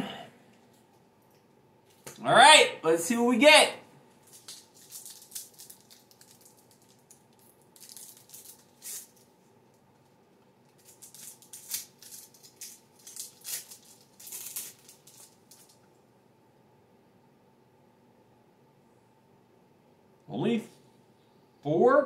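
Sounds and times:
foil wrapper crinkling and tearing: 4.2 - 9.4, 10.6 - 15.8.

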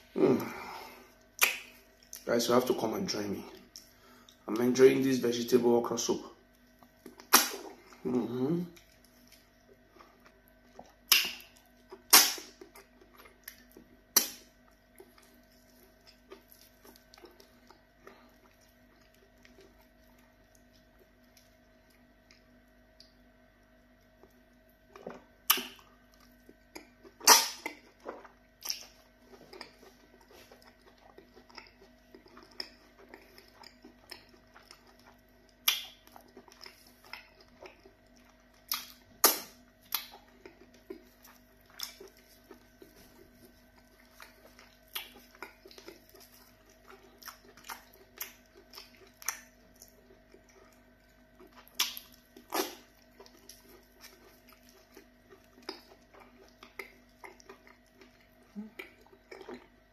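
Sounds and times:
faint steady hum: 0.0 - 59.9
loud mouth smacks: 1.4 - 1.7, 7.2 - 7.7, 11.1 - 11.4, 12.1 - 12.5, 14.2 - 14.5, 27.2 - 27.8, 38.7 - 40.1
chewing and swallowing: 6.4 - 59.9.

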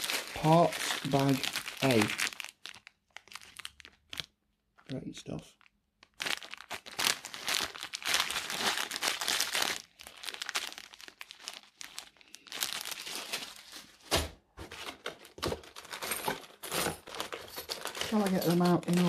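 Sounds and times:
plastic bag crinkling: 0.0 - 19.0.

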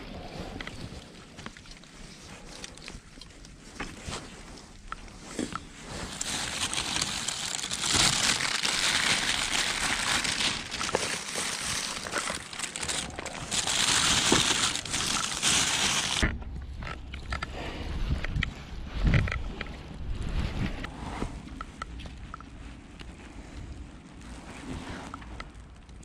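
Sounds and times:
plastic bags crinkling: 5.9 - 16.2.

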